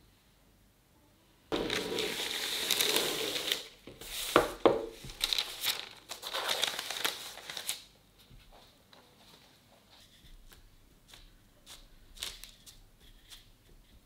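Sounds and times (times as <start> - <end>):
parchment paper crinkling: 1.5 - 8.0, 10.0 - 14.0.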